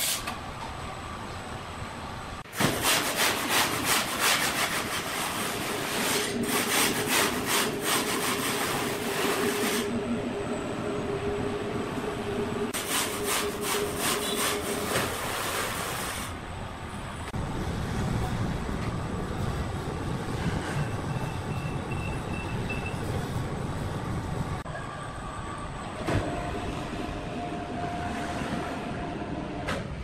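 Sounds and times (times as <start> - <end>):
steady machine hum: 5.6 - 14.8.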